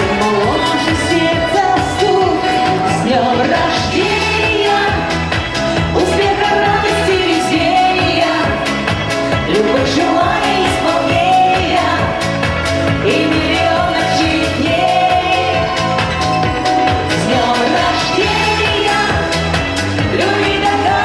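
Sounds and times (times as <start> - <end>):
pop backing track: 0.0 - 21.0
woman singing into microphone: 0.0 - 21.0.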